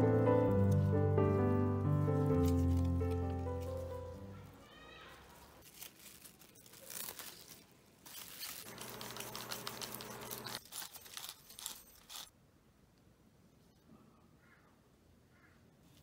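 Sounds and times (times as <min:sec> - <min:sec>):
sesame grinder crunching: 0:05.6 - 0:12.3.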